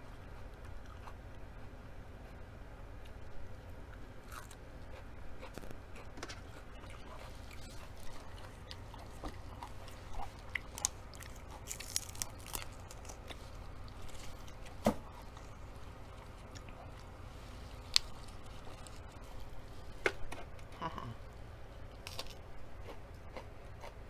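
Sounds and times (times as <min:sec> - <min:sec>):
low steady hum: 0:00.0 - 0:24.0
person chewing food: 0:00.4 - 0:01.4, 0:03.9 - 0:20.0, 0:21.9 - 0:24.0
crisp crunches: 0:07.1 - 0:15.5, 0:16.1 - 0:19.8, 0:22.0 - 0:22.4.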